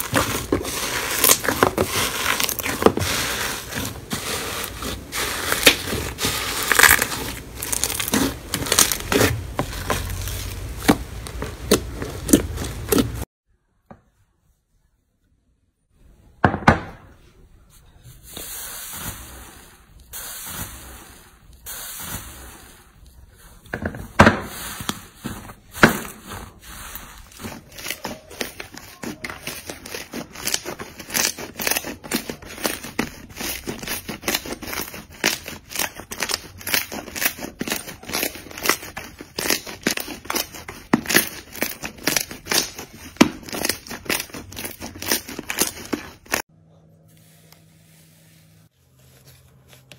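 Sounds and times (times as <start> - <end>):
slime squishing and crackling: 0.0 - 13.2, 24.5 - 46.5.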